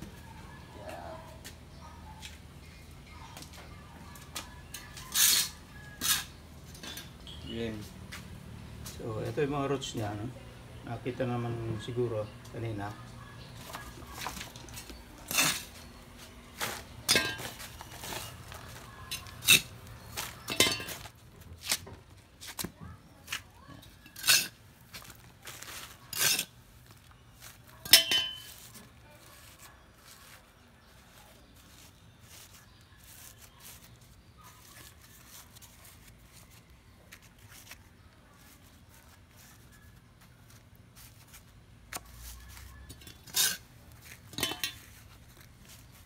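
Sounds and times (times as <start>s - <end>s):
metal trowel scraping concrete: 5.0s - 7.1s, 14.8s - 15.9s, 23.9s - 24.6s, 25.6s - 26.6s, 42.9s - 45.0s
soil rustling: 13.6s - 46.0s.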